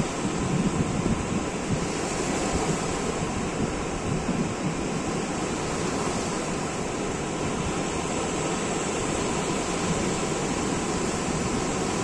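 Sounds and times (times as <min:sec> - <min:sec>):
waves breaking on shore: 0:00.0 - 0:12.0.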